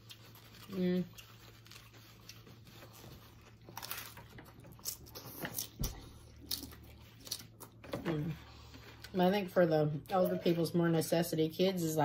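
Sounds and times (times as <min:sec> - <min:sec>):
person chewing crunchy food: 0:00.0 - 0:09.2.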